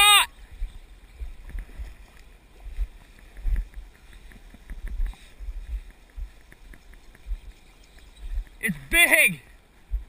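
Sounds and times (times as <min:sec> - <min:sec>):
flowing river water: 0:00.0 - 0:10.0
faint ticks: 0:01.2 - 0:08.6.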